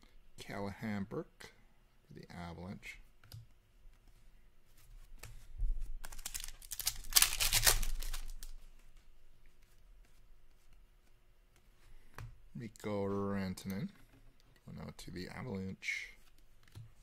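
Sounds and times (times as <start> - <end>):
trading cards shuffling: 5.0 - 12.2.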